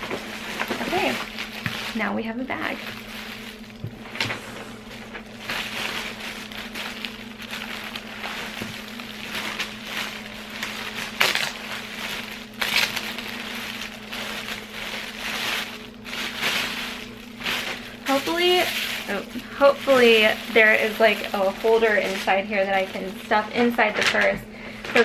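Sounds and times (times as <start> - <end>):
low motor hum: 0.0 - 25.0
plastic bag crinkling and rustling: 0.0 - 25.0.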